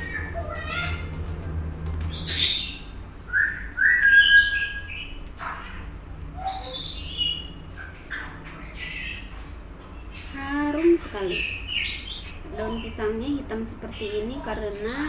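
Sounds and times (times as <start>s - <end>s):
bird chirping and whistling: 2.1s - 5.6s, 6.4s - 10.4s, 11.2s - 12.9s.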